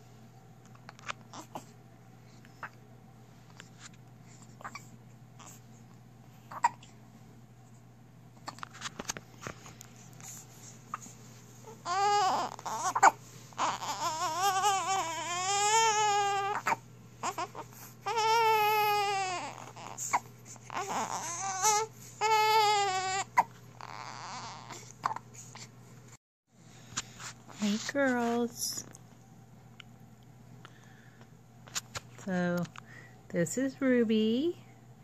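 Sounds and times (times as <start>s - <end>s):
baby crying: 11.8s - 25.2s.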